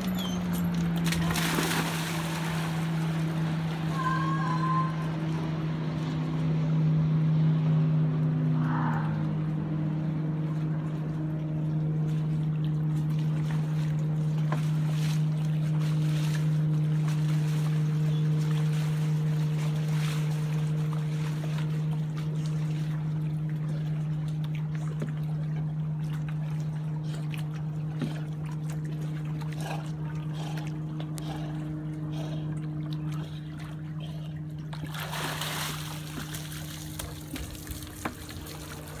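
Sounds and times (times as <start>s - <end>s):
steady low hum: 0.0s - 39.0s
water lapping at shore: 0.0s - 39.0s
dog splashing out of water: 0.9s - 3.6s, 34.7s - 39.0s.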